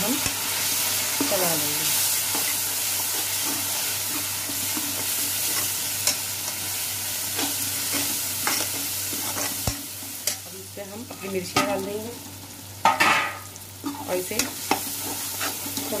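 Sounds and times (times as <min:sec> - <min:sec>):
masala sizzling in oil: 0:00.0 - 0:16.0
metal spoon scraping pan: 0:07.4 - 0:10.4, 0:13.8 - 0:16.0.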